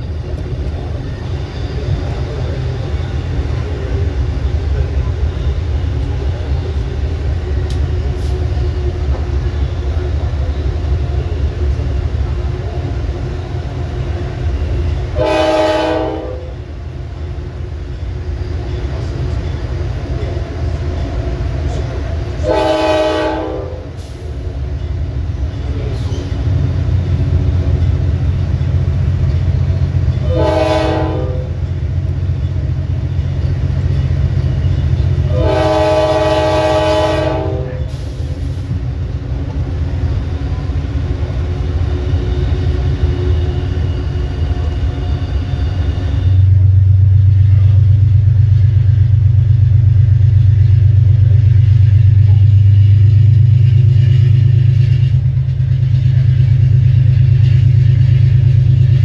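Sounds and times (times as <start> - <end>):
diesel engine rumble: 0.0 - 15.4, 23.6 - 59.0
locomotive air horn blasts: 15.2 - 16.6, 22.4 - 24.1, 30.2 - 31.6, 35.3 - 38.0.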